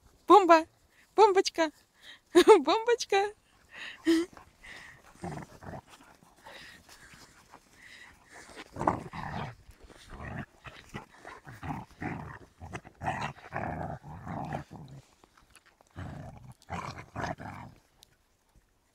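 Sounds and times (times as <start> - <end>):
puppies growling: 4.0 - 18.1.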